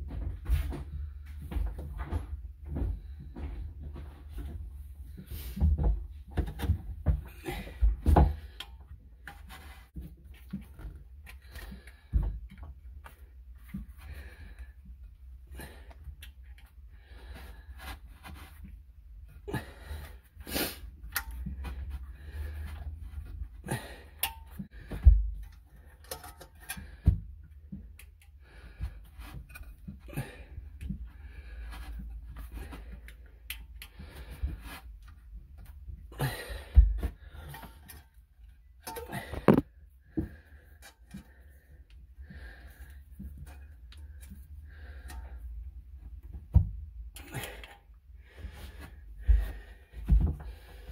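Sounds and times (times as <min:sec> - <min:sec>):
soft breathing: 0:07.1 - 0:35.3, 0:38.9 - 0:46.2, 0:47.2 - 0:50.9.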